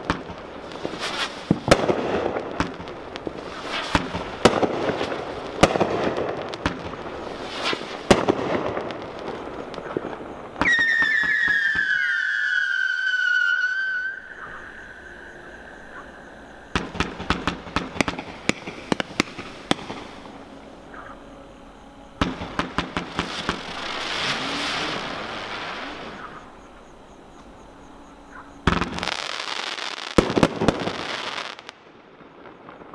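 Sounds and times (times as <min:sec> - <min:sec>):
firework bangs and crackling: 0:00.0 - 0:14.4, 0:16.7 - 0:21.1, 0:22.2 - 0:26.6, 0:28.6 - 0:32.9
firework launch pops: 0:03.5 - 0:09.0, 0:16.7 - 0:20.3
firework whistle falling in pitch: 0:10.6 - 0:16.1.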